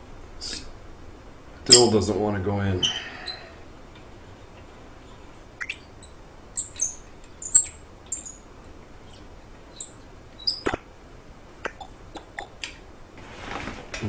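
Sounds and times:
thread tap squeaking: 5.6s - 8.4s, 9.1s - 10.9s, 11.6s - 12.7s.

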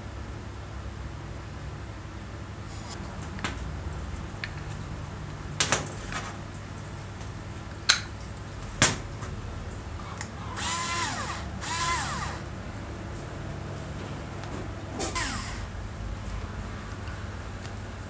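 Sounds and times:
electric screwdriver whirring: 10.5s - 12.5s, 15.2s - 15.7s.

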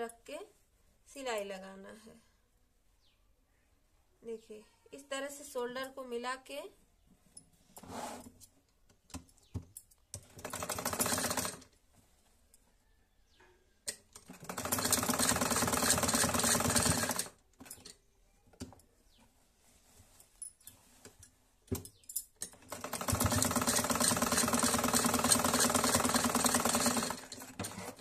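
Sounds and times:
sewing machine clatter: 10.2s - 11.7s, 14.2s - 17.9s, 22.5s - 28.0s.

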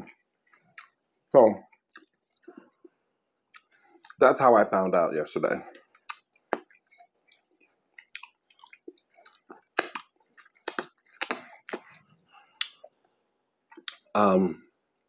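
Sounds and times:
man chewing with wet smacks: 0.0s - 4.2s, 5.7s - 13.0s, 13.7s - 14.1s.

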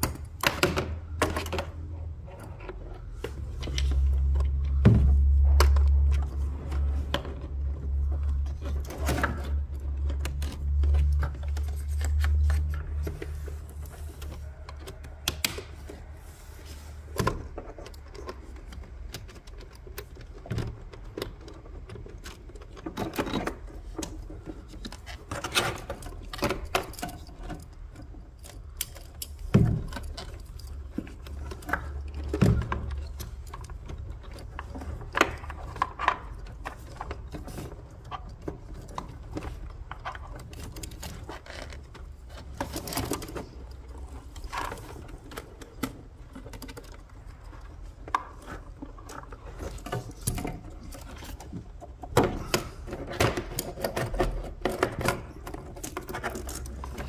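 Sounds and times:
plastic connectors clicking: 17.2s - 57.0s.

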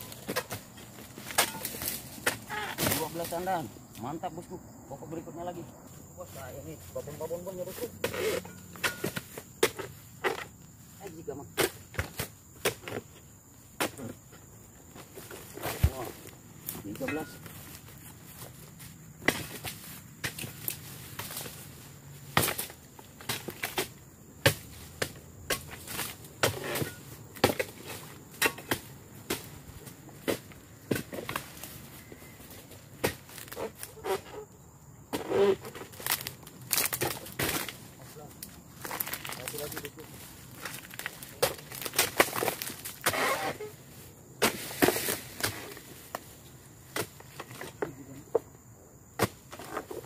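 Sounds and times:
chisel chopping palm fronds: 0.0s - 3.6s, 7.5s - 10.5s, 11.5s - 13.1s, 15.5s - 16.2s, 19.2s - 21.6s, 22.3s - 31.8s, 32.9s - 34.2s, 35.1s - 37.8s, 40.6s - 43.7s, 44.4s - 46.2s, 46.9s - 48.0s, 49.2s - 50.0s.

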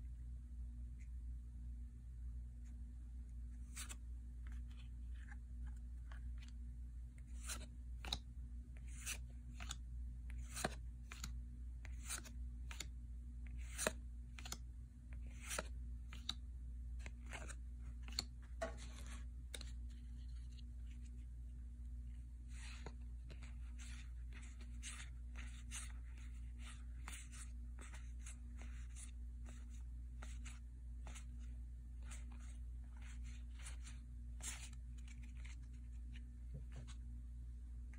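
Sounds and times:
cards rustling: 3.6s - 6.6s, 7.2s - 12.9s, 13.5s - 16.4s, 17.0s - 21.2s, 22.4s - 37.0s
cards snapping and sliding: 7.2s - 8.2s, 8.8s - 11.3s, 11.9s - 12.9s, 13.5s - 14.6s, 15.3s - 16.4s, 17.0s - 19.7s.

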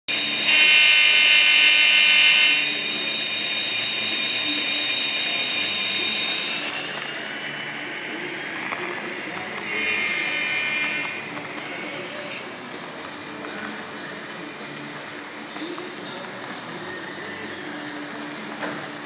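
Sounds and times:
model locomotive whine: 0.1s - 19.0s
model train horn: 0.5s - 2.7s.

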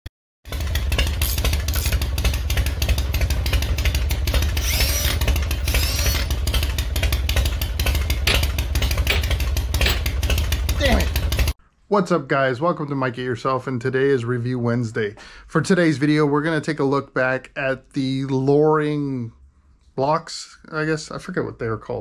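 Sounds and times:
motorcycle engine running: 0.4s - 11.6s.

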